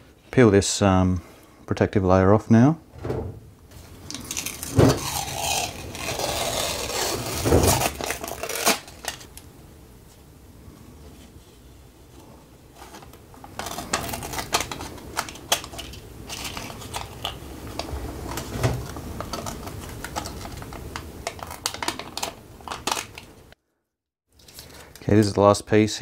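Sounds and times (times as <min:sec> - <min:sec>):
paper film peeling off acrylic: 0:03.7 - 0:09.5, 0:12.8 - 0:23.3.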